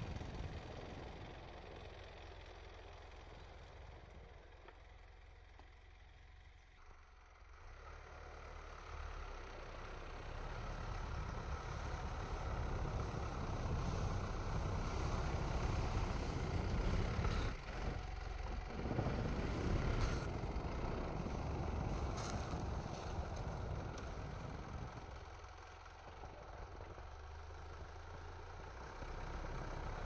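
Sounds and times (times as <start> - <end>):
diesel engine working under load: 0.0 - 30.0.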